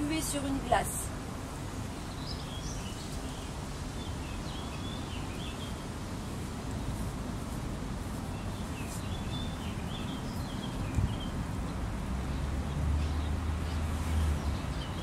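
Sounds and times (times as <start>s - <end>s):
small birds chirping: 1.8s - 15.0s.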